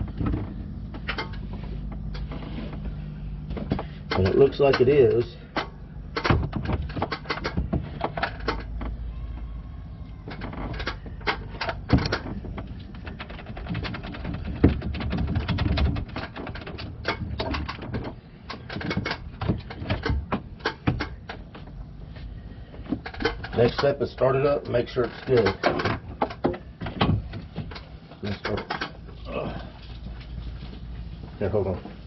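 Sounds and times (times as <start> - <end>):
light clicks and knocks: 0.0 - 9.5
low steady hum: 0.0 - 32.0.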